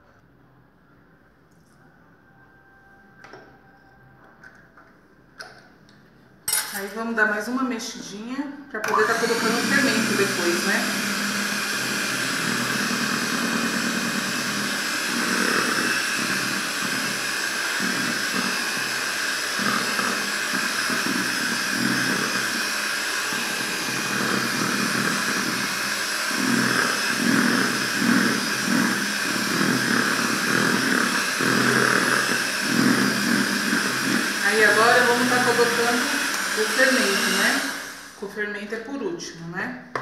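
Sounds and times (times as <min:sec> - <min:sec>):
electric hand mixer churning batter: 0:08.8 - 0:38.5.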